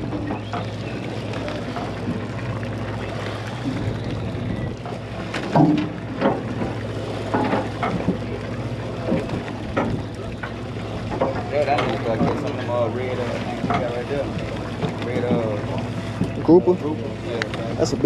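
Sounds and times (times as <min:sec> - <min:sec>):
boat machinery humming: 0:00.0 - 0:18.0
knocks and clatter: 0:04.8 - 0:08.3.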